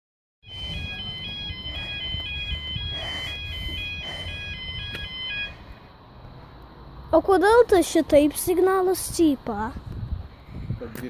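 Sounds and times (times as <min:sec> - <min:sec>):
level crossing alarm warbling: 0:00.4 - 0:05.8.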